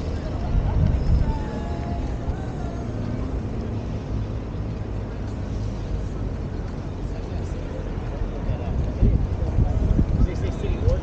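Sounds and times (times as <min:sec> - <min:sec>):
wind rushing over microphone: 0:00.0 - 0:07.2, 0:07.8 - 0:11.0.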